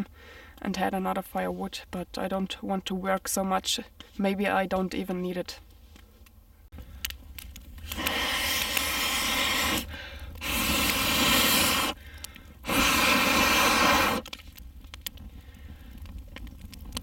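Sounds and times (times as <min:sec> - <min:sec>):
campfire crackling: 0:05.5 - 0:17.0
air blown through bellows tube: 0:07.8 - 0:12.0, 0:12.6 - 0:14.3.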